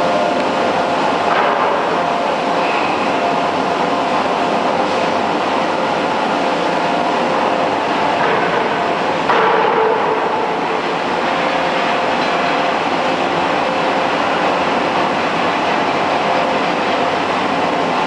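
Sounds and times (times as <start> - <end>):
forge machinery din: 0.0 - 18.0.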